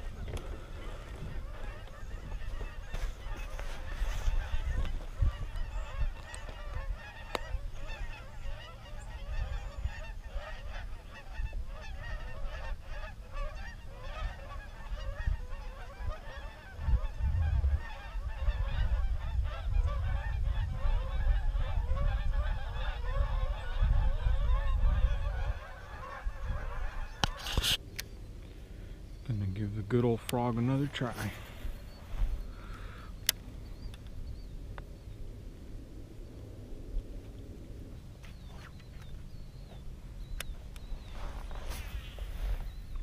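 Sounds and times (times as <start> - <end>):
geese honking: 0.0 - 27.8
wind rumbling on microphone: 0.0 - 43.0.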